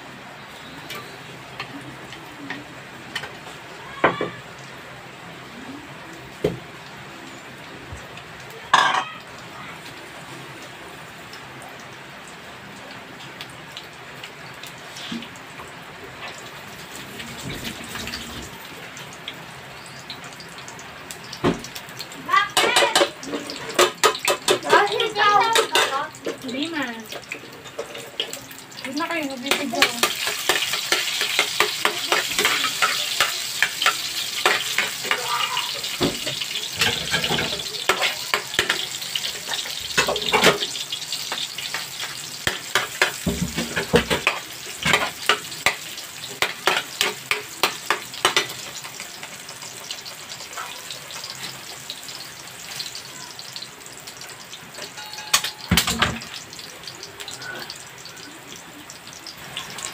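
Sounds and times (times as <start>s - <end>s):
onions sizzling in oil: 0.0s - 59.9s
spatula scraping a pan: 29.5s - 36.0s.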